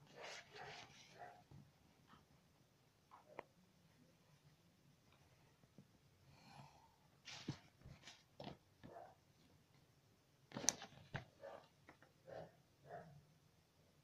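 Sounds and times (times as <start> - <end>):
paper rustling: 0.1 - 1.3.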